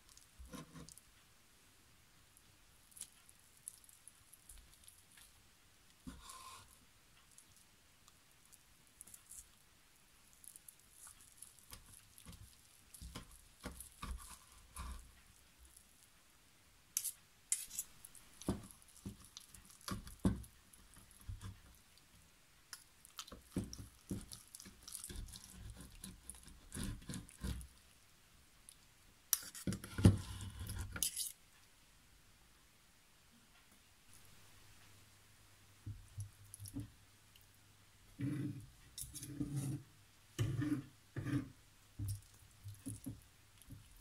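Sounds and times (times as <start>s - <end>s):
scraping on wooden board: 38.2s - 39.8s.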